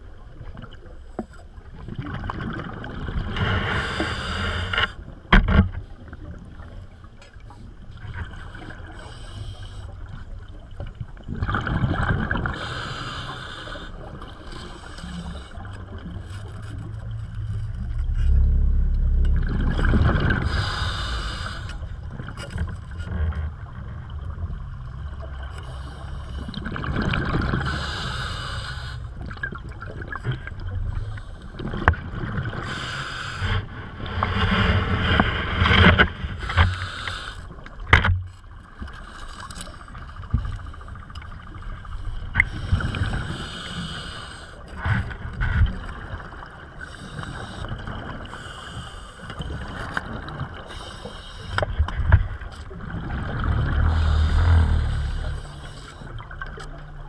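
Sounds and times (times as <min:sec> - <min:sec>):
regulator breath hiss: 0:12.6 - 0:14.0, 0:20.4 - 0:21.9, 0:27.6 - 0:29.1, 0:36.7 - 0:37.5, 0:42.5 - 0:44.6, 0:46.8 - 0:49.3, 0:50.7 - 0:51.6
exhaust bubbles rumbling: 0:14.0 - 0:37.0, 0:51.6 - 0:57.0.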